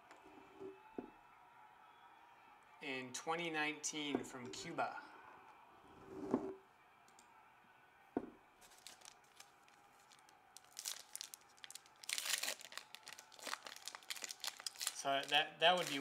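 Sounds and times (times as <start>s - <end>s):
knock: 8.2s - 8.4s
foil wrapper crinkling and tearing: 8.6s - 16.0s.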